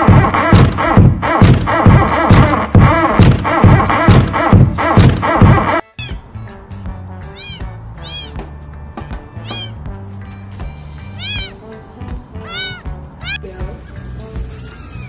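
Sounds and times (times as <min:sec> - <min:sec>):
background music: 0:00.0 - 0:15.0
kitten mewing: 0:05.9 - 0:06.2, 0:07.2 - 0:08.4, 0:09.4 - 0:09.8, 0:11.0 - 0:11.6, 0:12.4 - 0:13.4.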